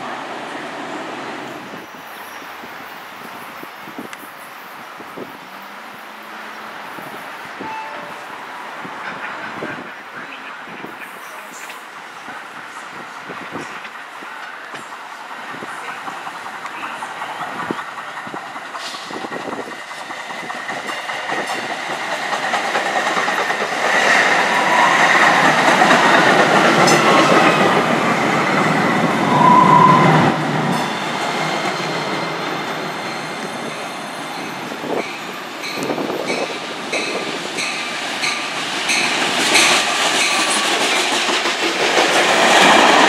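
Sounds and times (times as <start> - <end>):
train wheels on rails: 0.0 - 43.0
short tone: 7.6 - 8.4
high wheel squeal: 29.2 - 35.4.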